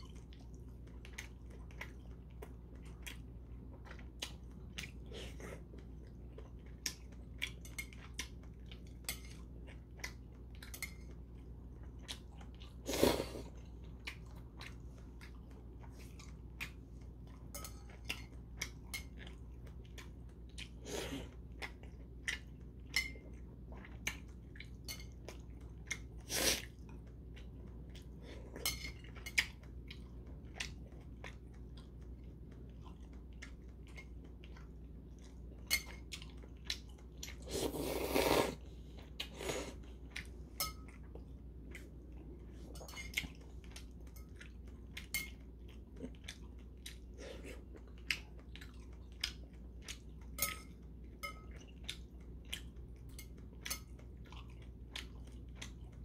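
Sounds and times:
chewing: 0.0 - 56.0
noodle slurps: 37.4 - 38.6.

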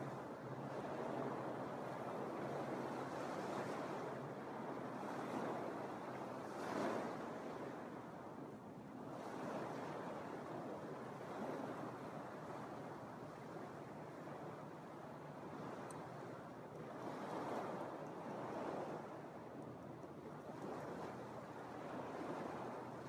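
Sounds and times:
wave splash: 0.0 - 8.2, 9.0 - 23.0
small waves washing onto beach: 0.0 - 23.0.

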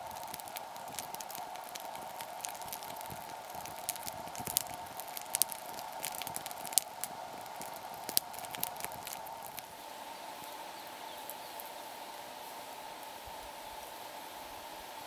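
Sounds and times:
sharp pops from fire: 0.0 - 9.8
campfire crackling: 0.0 - 15.0.

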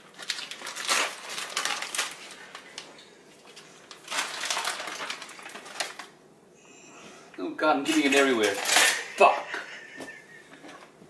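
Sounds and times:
plastic packaging crinkling: 0.0 - 6.2, 7.9 - 9.2.

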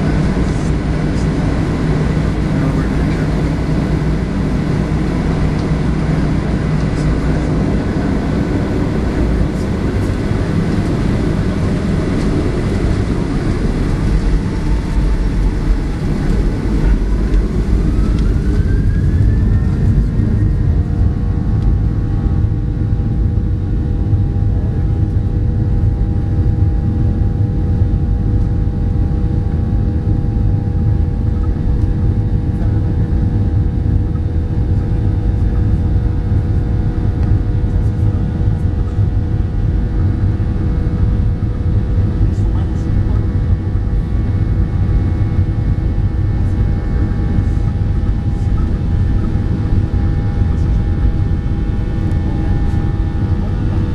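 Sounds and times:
jet engines spooling up: 0.0 - 21.7.

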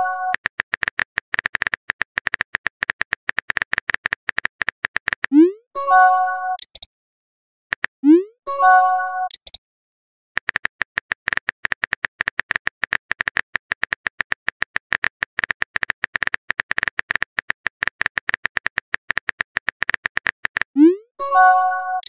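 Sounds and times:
keyboard typing clicks: 0.0 - 5.4, 6.5 - 6.9, 7.7 - 8.2, 9.3 - 9.6, 10.4 - 20.8.

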